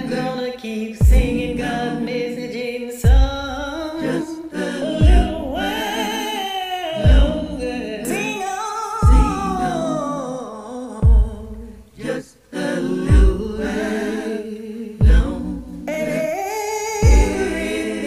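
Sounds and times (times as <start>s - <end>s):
karaoke backing track: 0.0s - 18.0s
woman singing gospel: 0.0s - 18.0s
deep beat: 1.0s - 2.4s, 3.0s - 6.2s, 7.0s - 8.4s, 9.0s - 10.1s, 11.0s - 12.2s, 12.8s - 14.3s, 15.0s - 16.2s, 17.0s - 18.0s.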